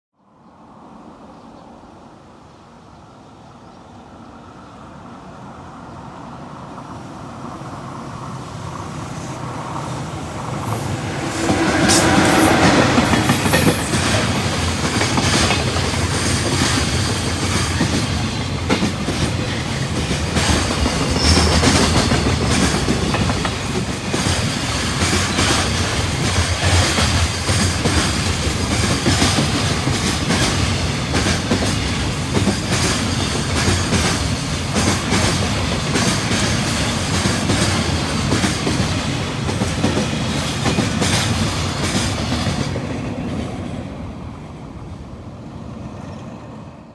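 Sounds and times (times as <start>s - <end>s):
locomotive approaching: 0.4s - 46.9s
wheels clacking over rail joints: 9.8s - 43.6s.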